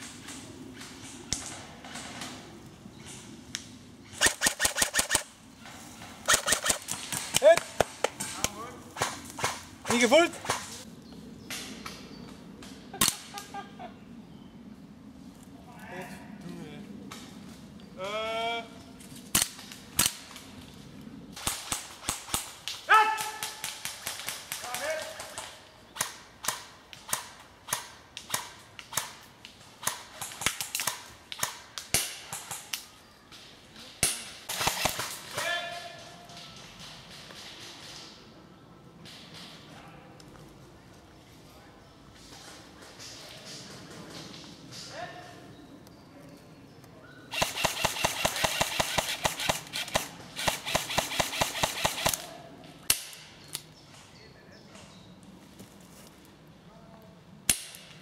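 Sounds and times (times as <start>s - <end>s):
airsoft gun shots: 4.2s - 5.3s, 6.2s - 10.8s, 34.0s - 35.5s, 47.3s - 52.3s.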